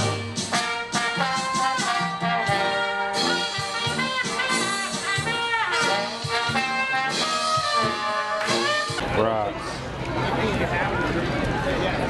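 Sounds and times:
oompah brass band playing: 0.0 - 9.0
trombone falling glide: 0.0 - 9.0.

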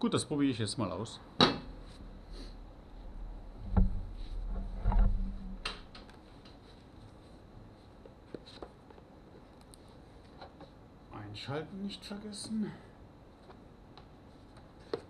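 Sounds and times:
low hum: 1.1 - 6.2
loud knocks: 3.5 - 6.0.

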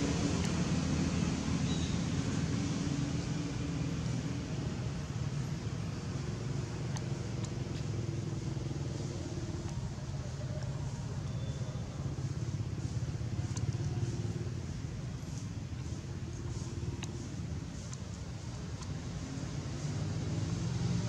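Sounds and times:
faint engine hum: 0.0 - 21.0
traffic rumble: 0.0 - 21.0
faint clicks: 6.6 - 8.3, 15.4 - 19.0.

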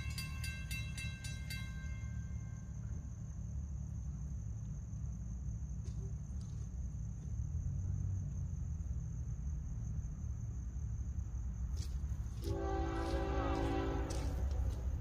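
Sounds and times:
locomotive horn chord: 12.4 - 15.0.

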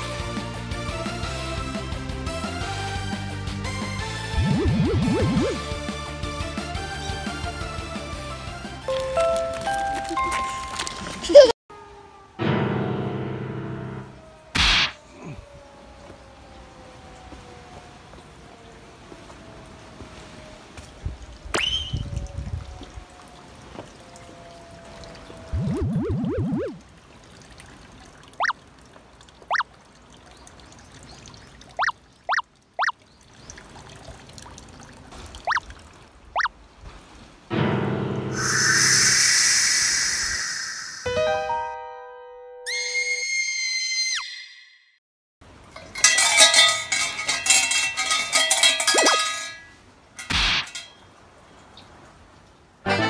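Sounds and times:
short rising electronic blips: 4.2 - 5.9, 25.5 - 26.8, 38.4 - 41.4
short noisy burst: 38.4 - 41.3
shrine bell jangling: 45.7 - 51.0.

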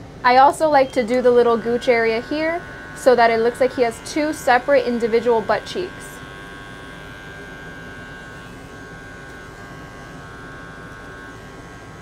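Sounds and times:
electric clippers buzzing: 0.0 - 12.0.

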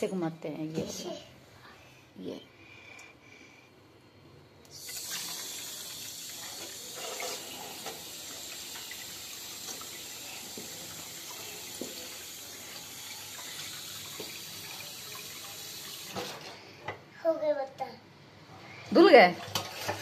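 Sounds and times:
water running into steel sink: 4.7 - 16.5.

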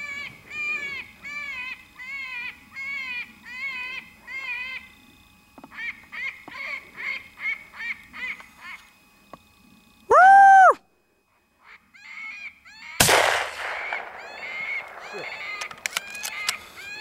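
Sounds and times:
predator call wailing cries: 13.8 - 17.0.

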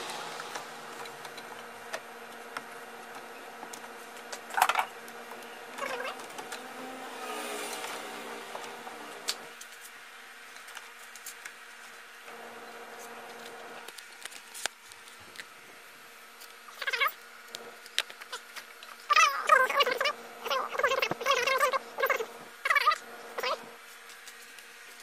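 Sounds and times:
steady low hum: 0.0 - 10.7.

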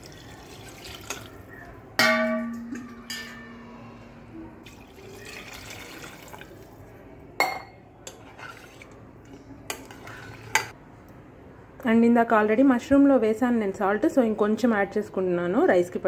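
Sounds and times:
water pouring into a pot: 0.0 - 1.5, 4.6 - 6.8
loud ringing clang: 2.0 - 3.9
ladle stirring and knocking: 7.4 - 10.8.

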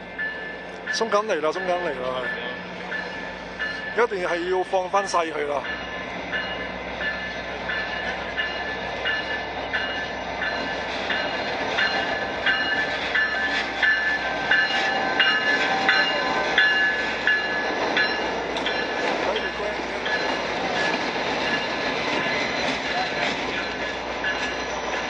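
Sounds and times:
diesel locomotive engine rumble: 0.0 - 25.0
train wheels on rails: 0.0 - 25.0
bell ringing: 0.2 - 21.7.

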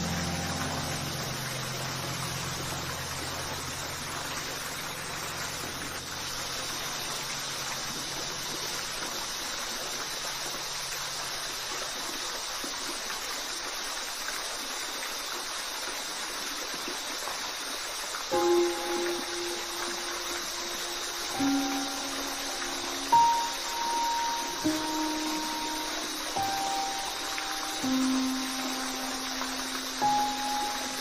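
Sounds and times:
background music low notes: 0.0 - 8.9, 18.3 - 31.0
waterfall rushing: 0.0 - 16.4, 17.0 - 31.0.

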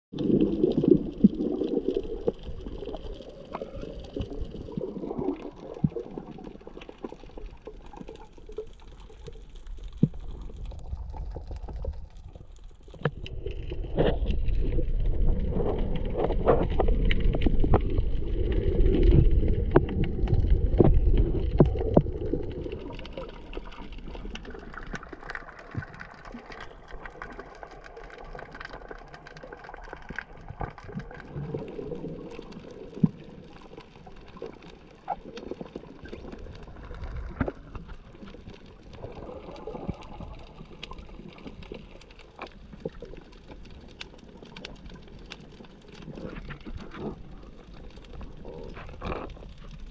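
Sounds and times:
underwater water gurgling: 0.1 - 49.9
deep rumble: 10.0 - 25.9.

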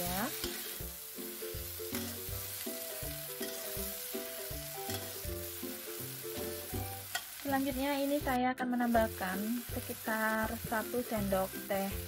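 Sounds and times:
spatula scraping a wok: 0.0 - 1.0, 3.2 - 7.4
food sizzling: 0.0 - 12.0.

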